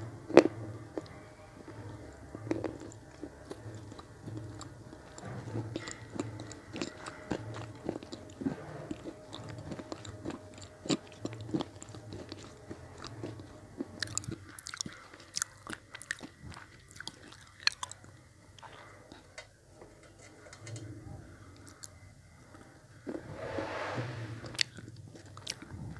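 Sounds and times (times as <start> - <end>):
chewing gritty crunches: 2.5 - 18.0.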